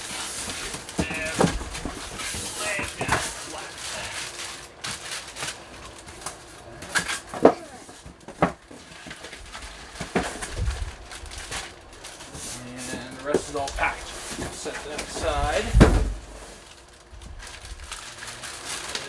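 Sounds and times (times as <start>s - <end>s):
cardboard and plastic packing rustling: 0.0s - 19.0s
low thump: 15.7s - 16.3s.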